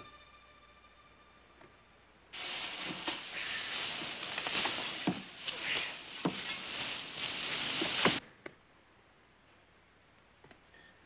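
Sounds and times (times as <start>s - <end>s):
branches and bushes rustling: 2.3s - 8.2s
twigs snapping: 2.4s - 8.2s.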